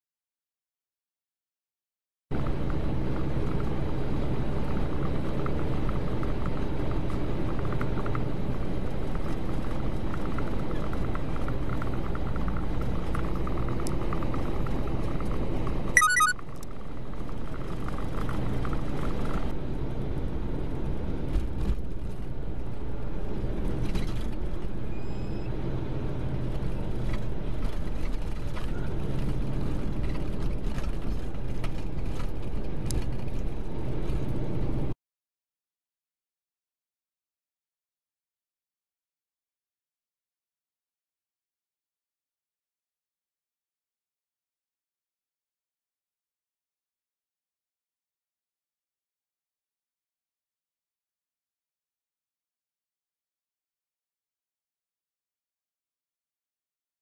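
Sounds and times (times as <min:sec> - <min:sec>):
truck engine and tyres rumbling: 0:02.3 - 0:35.0.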